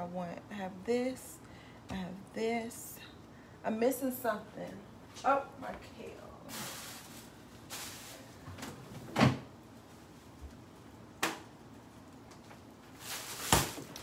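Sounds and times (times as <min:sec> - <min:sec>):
plastic bag rustling: 0:06.4 - 0:08.5, 0:12.8 - 0:14.0.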